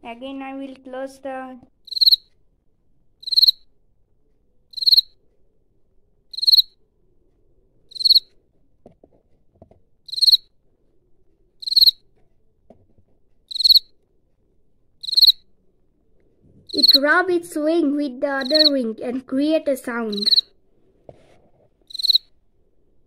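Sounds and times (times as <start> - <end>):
cricket chirping: 1.8 - 2.2, 3.2 - 3.6, 4.7 - 5.2, 6.3 - 6.8, 7.9 - 8.3, 10.1 - 10.5, 11.6 - 12.0, 13.5 - 13.9, 15.0 - 15.4, 16.7 - 17.0, 18.4 - 18.8, 20.1 - 20.5, 21.9 - 22.3.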